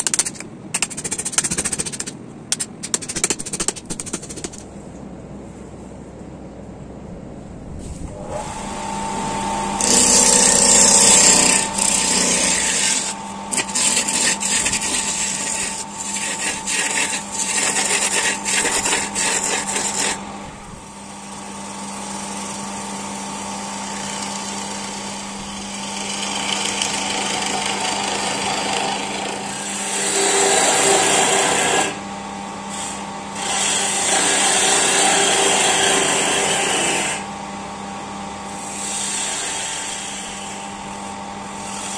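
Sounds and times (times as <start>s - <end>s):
wood lathe motor hum: 8.1s - 32.0s, 32.6s - 37.3s, 38.0s - 41.9s
turning tool cutting wood: 9.4s - 20.3s, 21.2s - 32.0s, 32.7s - 37.2s, 38.6s - 40.7s.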